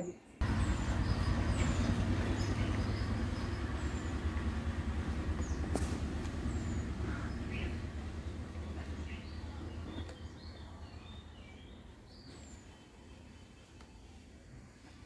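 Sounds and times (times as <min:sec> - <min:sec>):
bird chirps: 0:00.0 - 0:13.8
vehicle engine rumble: 0:00.4 - 0:15.0.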